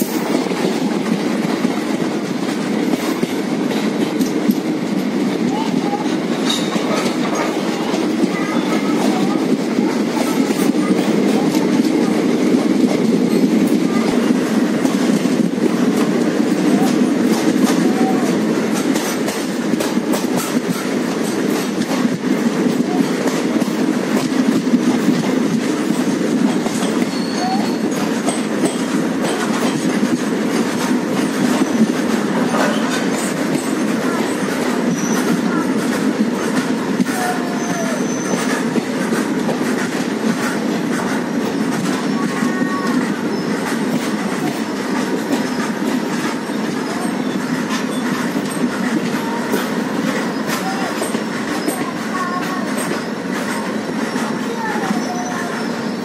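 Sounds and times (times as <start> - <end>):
train wheels rumbling on rail: 0.0 - 56.0
high wheel squeals: 27.0 - 28.1, 34.9 - 35.6, 37.2 - 38.6.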